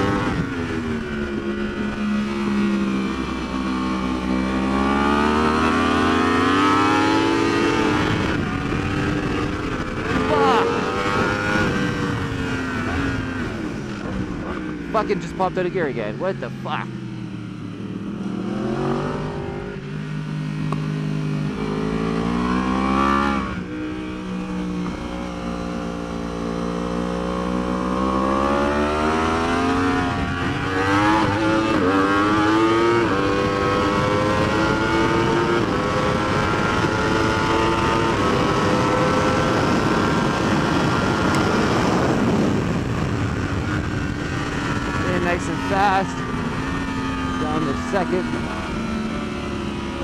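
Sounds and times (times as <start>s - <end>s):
wind rushing over microphone: 0.0s - 15.5s, 28.9s - 50.0s
motorcycle engine at speed: 0.0s - 50.0s.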